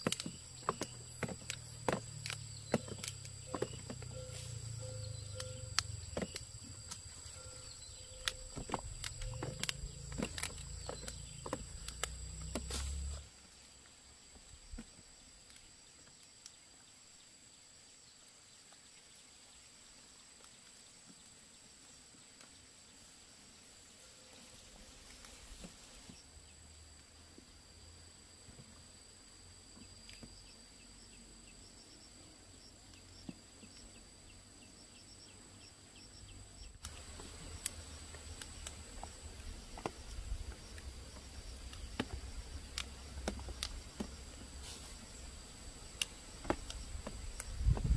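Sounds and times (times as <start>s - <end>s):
high-pitched insect calls: 0.0s - 13.3s.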